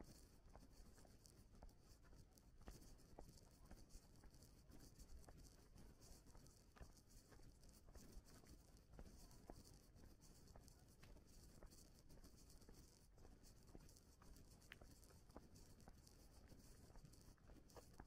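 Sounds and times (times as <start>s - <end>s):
faint clicks and ticks: 0.0s - 18.0s.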